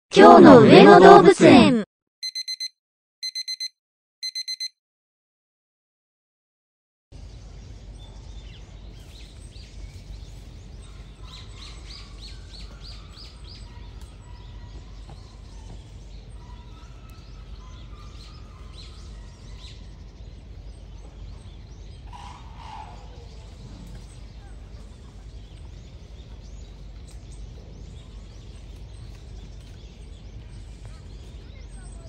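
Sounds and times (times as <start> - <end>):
small birds chirping: 7.2 - 32.0
loud bird call: 10.8 - 20.2, 21.0 - 25.8.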